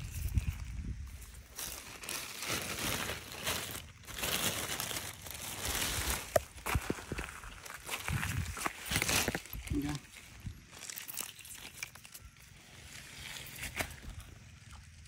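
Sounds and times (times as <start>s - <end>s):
footsteps on wet gritty soil: 3.5s - 12.1s.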